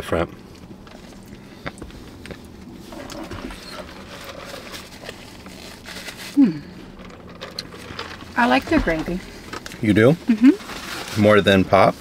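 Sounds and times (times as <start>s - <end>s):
paper napkin rustling: 2.7s - 12.0s.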